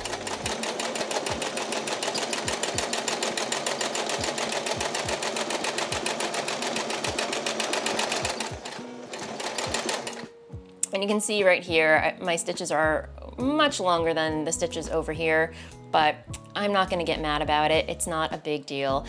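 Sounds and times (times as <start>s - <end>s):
sewing machine stitching: 0.0s - 10.3s.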